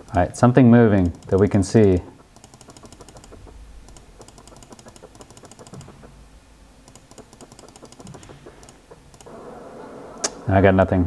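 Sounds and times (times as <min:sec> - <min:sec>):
keyboard keys clicking: 0:01.0 - 0:06.1, 0:06.8 - 0:09.3.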